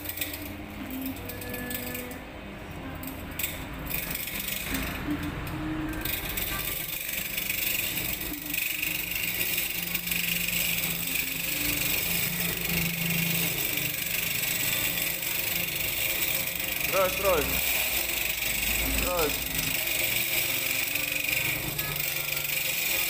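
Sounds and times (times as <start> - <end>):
saw blade grinding concrete: 6.0 - 23.0.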